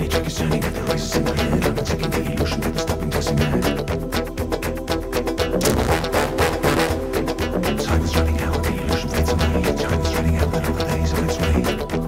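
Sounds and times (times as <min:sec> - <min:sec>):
background music with held notes: 0:00.0 - 0:12.0
quick percussive beat: 0:05.5 - 0:07.3.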